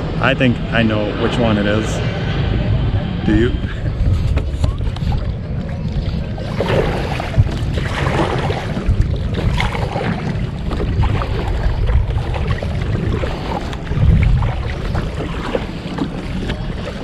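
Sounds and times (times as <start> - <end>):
wind buffeting microphone: 0.0 - 17.0
paddle strokes splashing water: 4.0 - 17.0.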